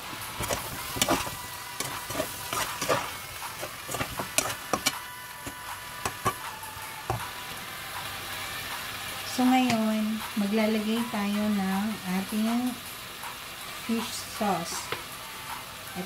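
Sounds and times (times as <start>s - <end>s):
chicken sizzling: 0.0s - 16.0s
spoon scraping pot: 0.4s - 6.4s.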